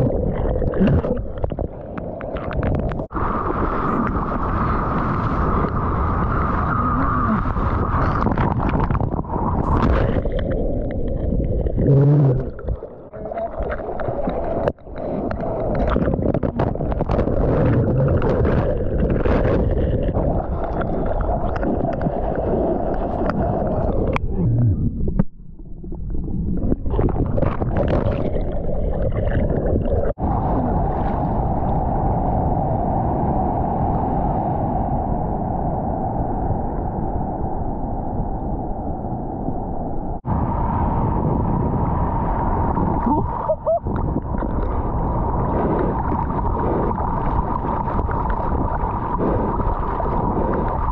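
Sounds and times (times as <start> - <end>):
ocean surf rushing and splashing: 1.7 - 11.8, 40.2 - 50.9.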